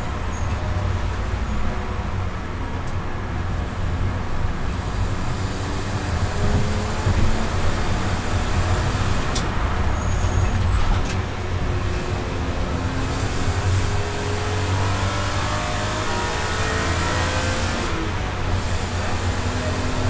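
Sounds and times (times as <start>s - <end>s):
car engine revving inside cabin: 4.9s - 9.6s, 11.7s - 20.0s.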